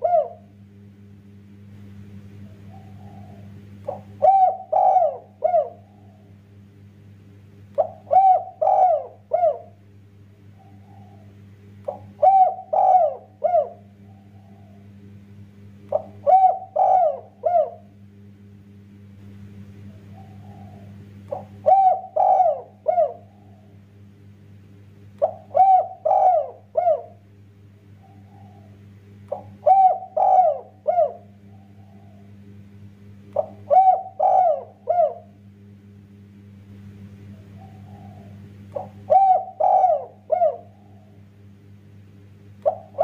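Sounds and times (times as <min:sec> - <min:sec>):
dove cooing: 0:00.0 - 0:00.6, 0:02.2 - 0:06.4, 0:07.7 - 0:09.8, 0:10.4 - 0:15.0, 0:15.9 - 0:18.0, 0:19.8 - 0:23.9, 0:25.2 - 0:27.2, 0:27.8 - 0:32.5, 0:33.3 - 0:35.4, 0:37.2 - 0:41.6, 0:42.6 - 0:43.0.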